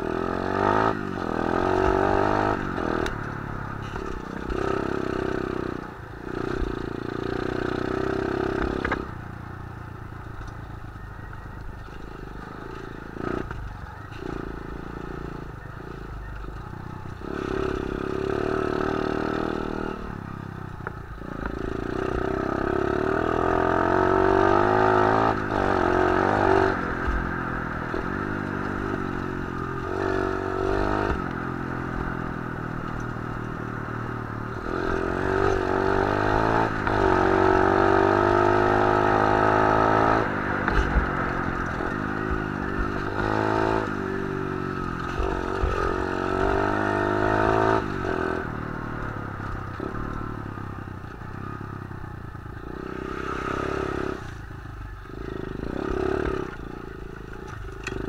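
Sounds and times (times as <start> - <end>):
motorbike engine revving: 0.0 - 9.1, 21.2 - 51.8, 52.4 - 58.0.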